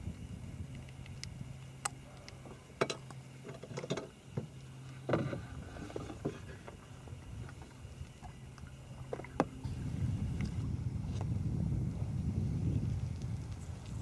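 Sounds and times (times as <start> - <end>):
faint low hum: 0.0 - 14.0
knocks and taps on canoe: 9.1 - 9.6.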